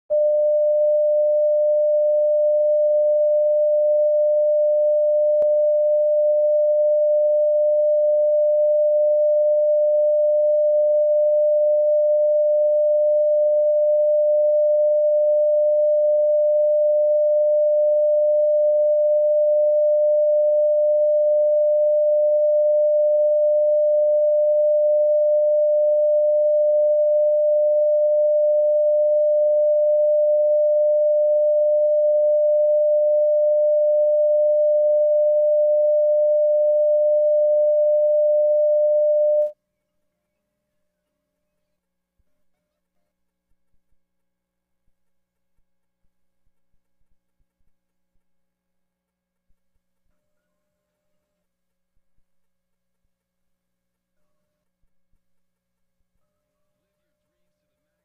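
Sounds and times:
steady test tone beep: 0.1s - 39.5s.

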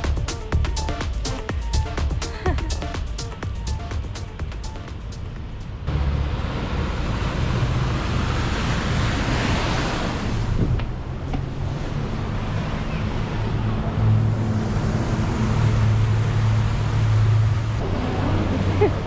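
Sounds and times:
low engine drone: 0.0s - 19.0s
wind on microphone: 9.1s - 11.7s.

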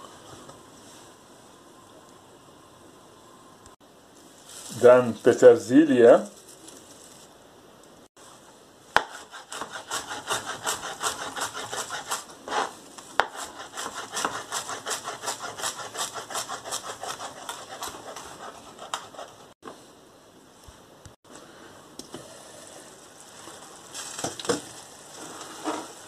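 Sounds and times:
knife chopping on plastic board: 9.0s - 11.9s.

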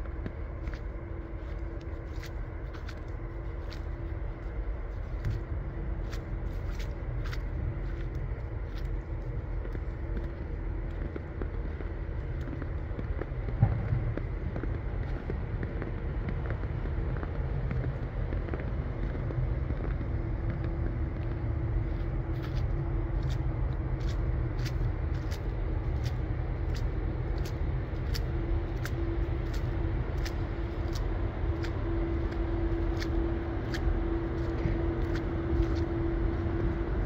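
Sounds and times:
vehicle engine low rumble: 0.0s - 37.0s.

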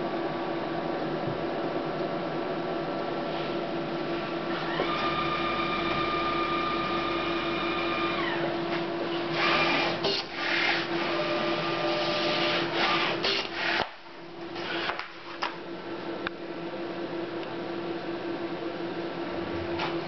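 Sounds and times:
printer humming: 0.0s - 13.8s
printer motor whine: 4.1s - 13.9s
printer mechanical noise bursts: 9.3s - 13.8s.

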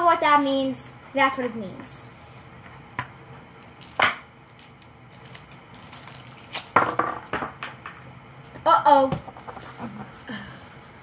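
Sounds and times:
paper wrapping tearing: 5.1s - 6.8s.

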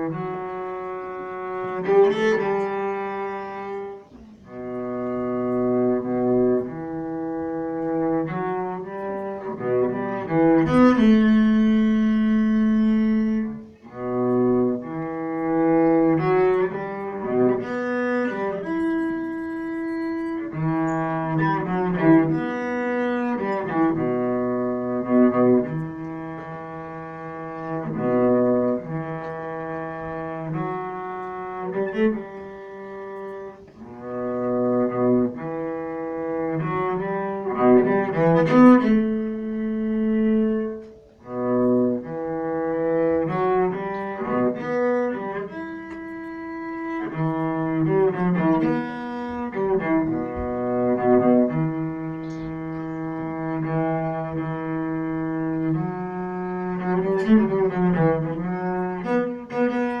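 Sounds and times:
bowed cello solo: 0.0s - 60.0s.

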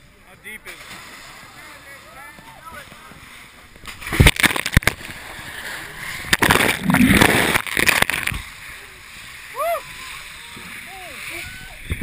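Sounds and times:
water splashing and sloshing: 0.5s - 12.0s
water churning: 0.6s - 12.0s
sharp thumps: 6.2s - 8.4s.

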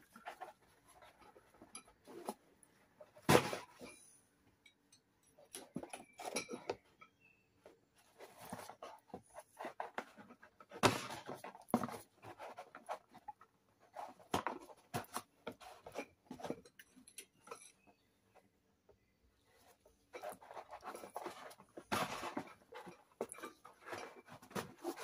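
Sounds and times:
metal rods scraping in cardboard: 5.5s - 7.4s, 8.0s - 18.0s, 19.6s - 25.0s.

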